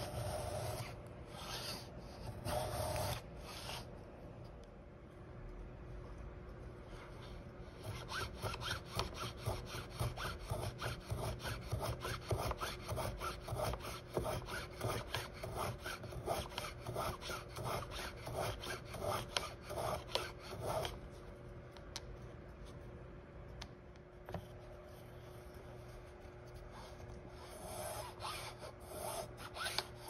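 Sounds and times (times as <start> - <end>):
hand plane shaving wood: 7.8 - 20.9.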